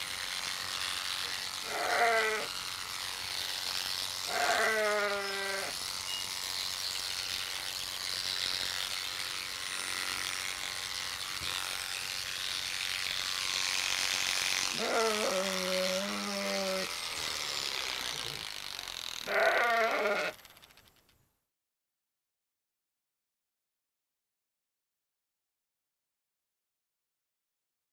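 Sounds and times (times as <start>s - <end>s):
electric clippers buzzing: 0.0s - 20.6s
sheep bleating: 1.6s - 2.5s, 4.2s - 5.8s, 14.7s - 16.9s, 19.2s - 20.4s.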